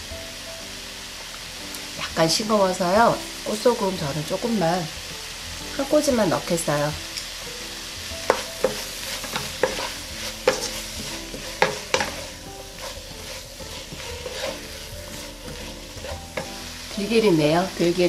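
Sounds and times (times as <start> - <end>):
onions sizzling in a pan: 0.0 - 18.0
wooden spatula scraping and knocking: 8.2 - 18.0.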